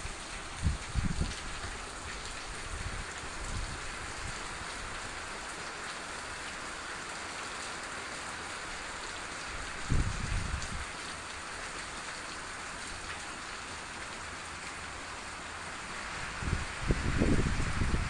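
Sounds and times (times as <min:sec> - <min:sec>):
rain falling on roof and plants: 0:00.0 - 0:18.0
low rumble on microphone: 0:00.6 - 0:01.4, 0:16.3 - 0:18.0.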